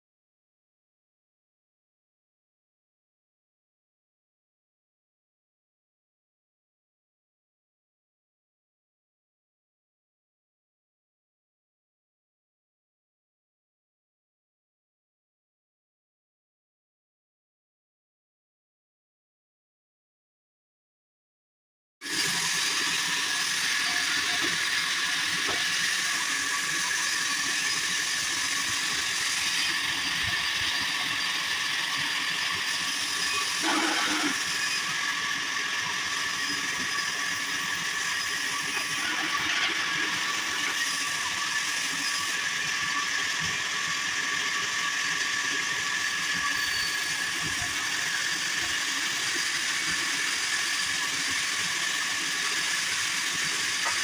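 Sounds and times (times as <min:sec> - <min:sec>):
band saw whining: 0:22.0 - 0:54.0.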